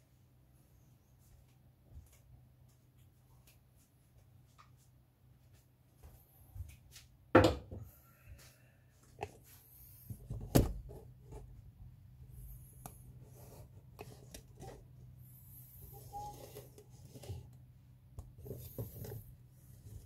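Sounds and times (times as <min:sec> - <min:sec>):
low steady hum: 0:00.0 - 0:20.0.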